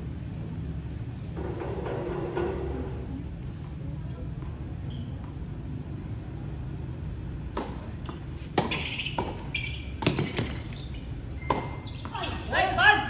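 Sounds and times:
tennis ball struck by rackets: 7.5s - 10.6s
tennis ball bouncing on court: 7.5s - 10.8s, 11.4s - 12.3s.

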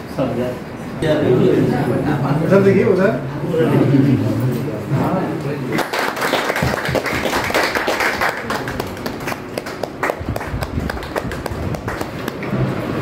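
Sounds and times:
scattered claps: 5.8s - 12.6s.

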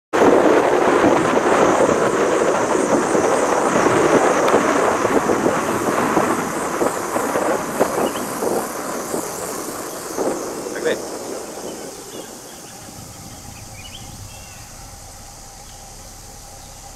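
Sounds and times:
vehicle rumbling along road: 0.2s - 16.9s
high pulsing drone: 12.0s - 16.9s.

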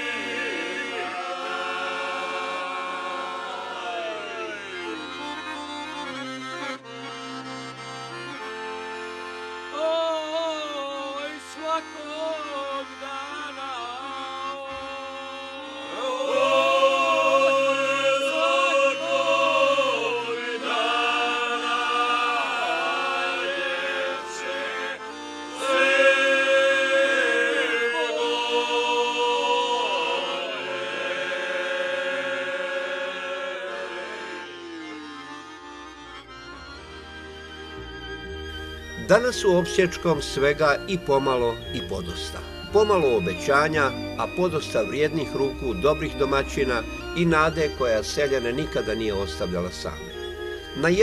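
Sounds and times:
men singing together: 0.0s - 4.8s, 14.6s - 25.0s, 25.6s - 34.3s
piano accordion: 0.0s - 51.0s.

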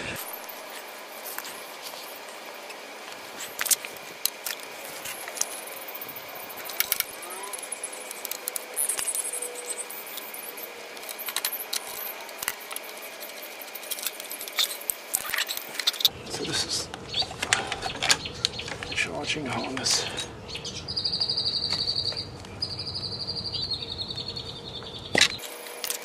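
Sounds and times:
connectors clicking and clinking: 0.2s - 16.1s.

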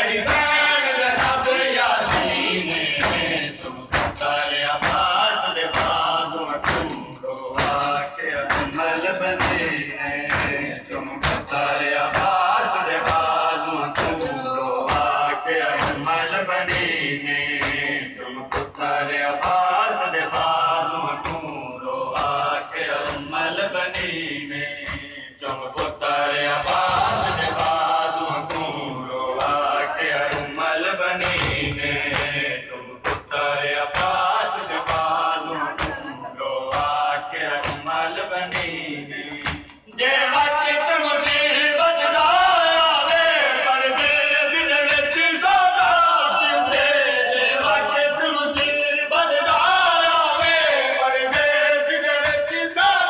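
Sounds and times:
men chanting a lament: 0.0s - 53.0s
hands slapping chests: 1.1s - 1.4s, 2.0s - 36.1s, 36.7s - 39.8s.

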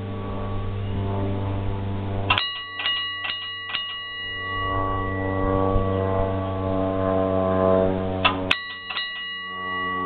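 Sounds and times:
brass bell struck: 2.3s - 6.8s, 8.2s - 10.0s
low horn-like tone: 4.4s - 8.5s.

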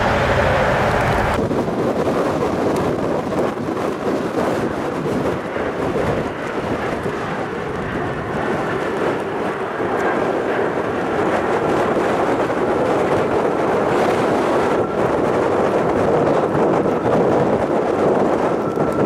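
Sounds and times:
jet engines rumbling: 0.0s - 19.0s
wind buffeting microphone: 0.0s - 19.0s.

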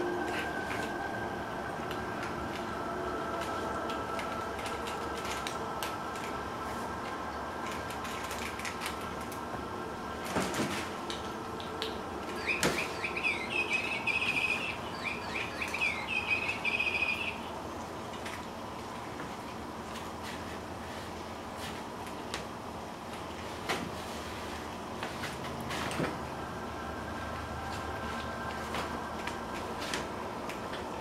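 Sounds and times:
kittens chirping: 12.4s - 17.5s.

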